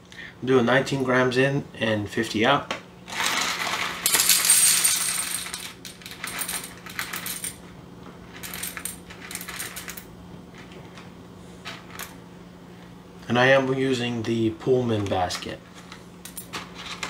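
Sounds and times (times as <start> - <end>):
steady low hum: 0.0 - 17.0
coffee beans rattling in metal cup: 3.1 - 7.6.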